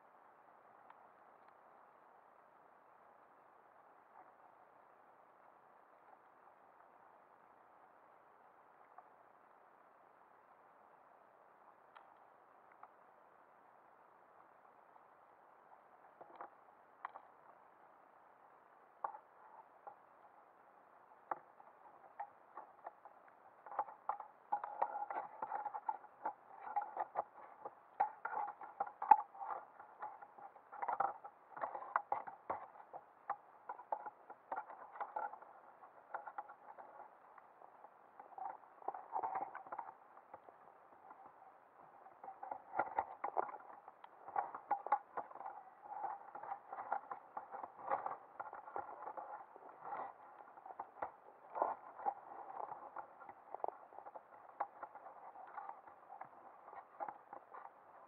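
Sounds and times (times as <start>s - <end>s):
muffled underwater clicking and crackling: 11.7s - 13.2s, 14.3s - 58.0s.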